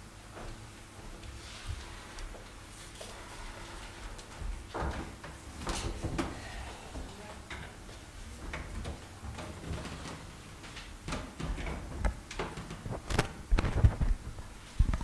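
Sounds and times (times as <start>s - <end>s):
knocks and rustles at a desk: 4.3s - 6.4s, 8.4s - 15.0s
microphone handling thumps: 12.8s - 15.0s.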